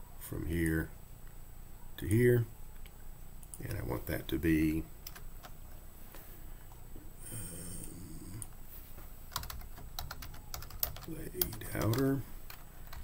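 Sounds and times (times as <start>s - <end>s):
computer keyboard keys clicking: 5.0s - 5.6s, 9.3s - 13.0s.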